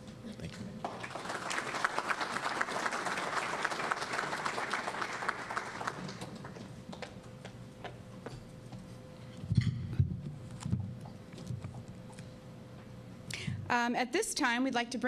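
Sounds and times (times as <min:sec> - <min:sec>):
audience applauding: 0:00.8 - 0:06.8.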